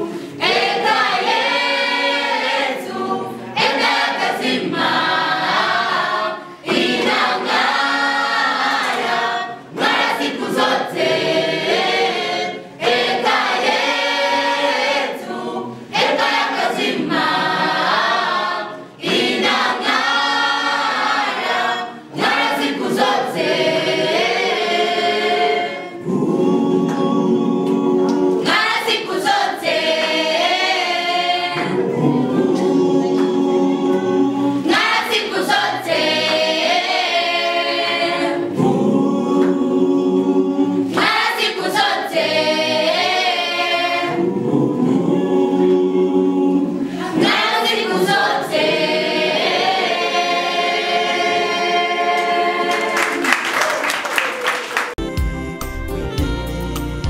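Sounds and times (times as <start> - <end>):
choir singing a cappella: 0.0 - 53.5.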